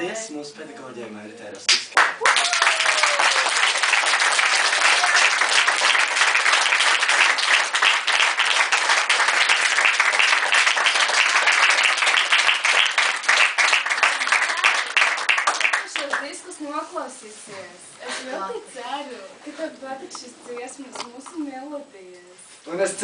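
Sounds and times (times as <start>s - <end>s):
crowd clapping: 1.7s - 16.4s.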